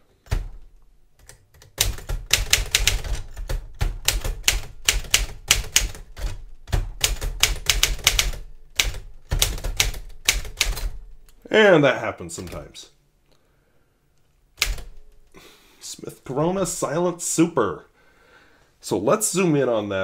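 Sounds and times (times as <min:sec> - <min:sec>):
typewriter keys striking: 0:01.2 - 0:11.1, 0:14.6 - 0:15.0.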